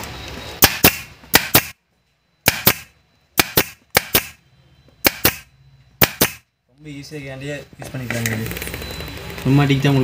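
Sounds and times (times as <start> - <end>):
air stapler sharp cracks: 0.6 - 1.8, 2.5 - 4.4, 5.0 - 5.4, 6.0 - 6.4.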